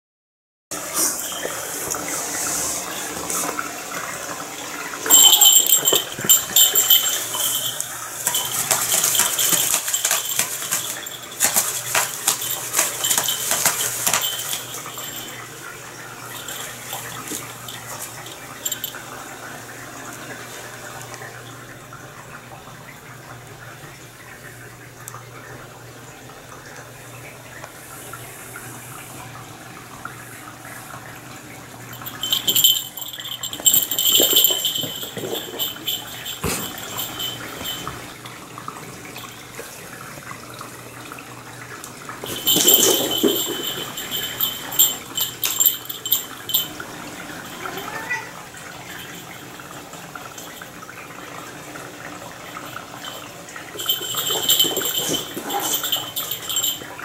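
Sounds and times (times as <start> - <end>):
low steady hum: 5.1 - 51.8
cats scratching and scuffling: 5.8 - 15.3.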